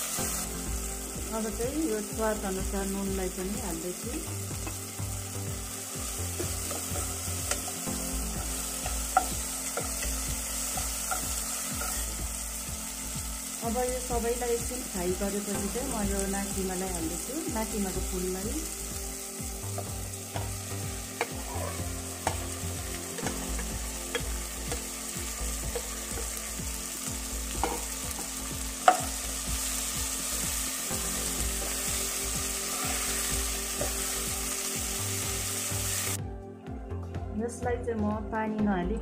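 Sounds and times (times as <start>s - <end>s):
food sizzling in hot oil: 0.0s - 36.2s
spatula scraping a wok: 32.5s - 34.2s.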